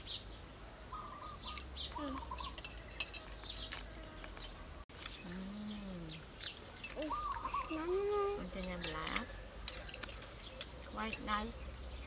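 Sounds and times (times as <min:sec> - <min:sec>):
small birds chirping: 0:00.0 - 0:12.0
metal spoons clinking on plate: 0:02.3 - 0:03.9, 0:08.6 - 0:11.4.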